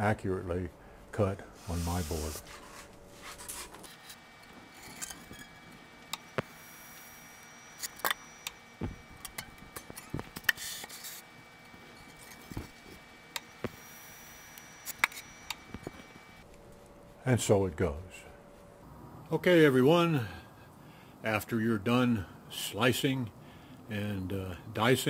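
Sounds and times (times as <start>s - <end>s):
faint steady high whine: 0.0s - 25.0s
foam rubbing swishes: 1.6s - 3.8s.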